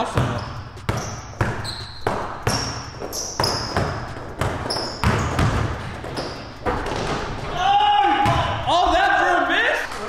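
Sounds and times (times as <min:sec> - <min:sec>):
sneaker squeaks on floor: 0:00.0 - 0:07.3
basketball bouncing on hardwood: 0:00.0 - 0:07.5.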